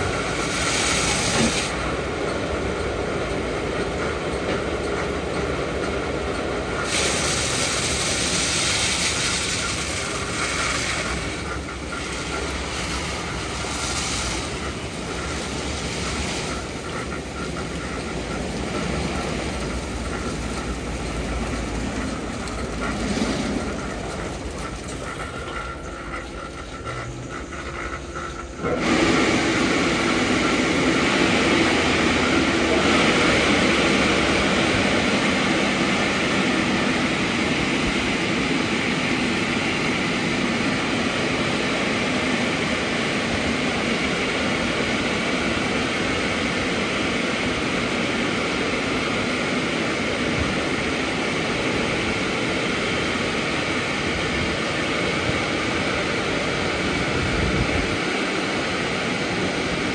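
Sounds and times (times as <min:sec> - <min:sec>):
water spraying: 0:00.0 - 0:02.0, 0:06.7 - 0:40.8
drying blower rushing air: 0:00.0 - 0:02.1, 0:06.6 - 0:59.9
rotating car wash brushes: 0:00.0 - 0:02.1, 0:05.7 - 0:38.1.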